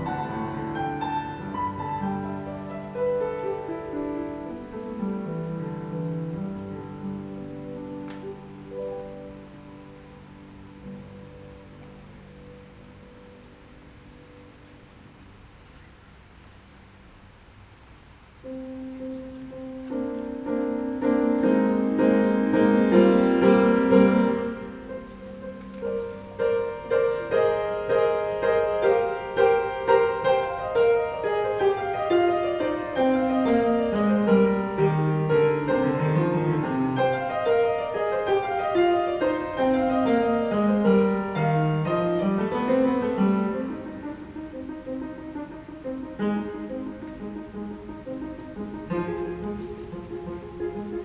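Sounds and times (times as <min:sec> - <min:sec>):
upright piano playing: 0:00.0 - 0:15.6, 0:18.3 - 0:51.0.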